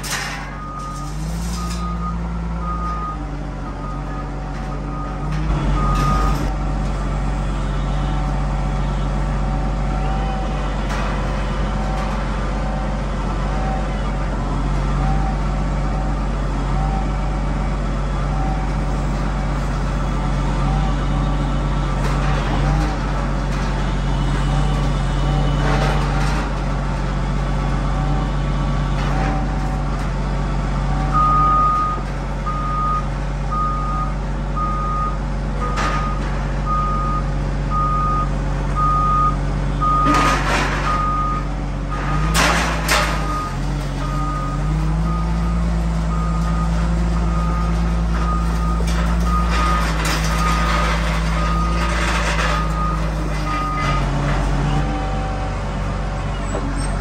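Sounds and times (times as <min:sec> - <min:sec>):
metal clanks: 0:00.0 - 0:02.0, 0:40.0 - 0:41.3, 0:41.9 - 0:44.1
diesel engine under load: 0:00.0 - 0:57.0.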